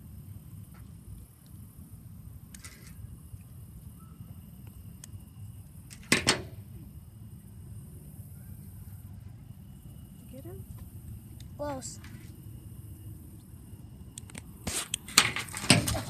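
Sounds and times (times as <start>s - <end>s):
steady low rumble: 0.0s - 14.6s.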